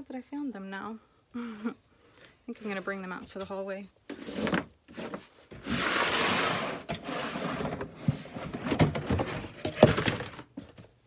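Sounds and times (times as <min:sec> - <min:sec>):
plastic lids scraping: 0:03.3 - 0:10.5
plastic lids clattering and knocking: 0:06.8 - 0:10.9.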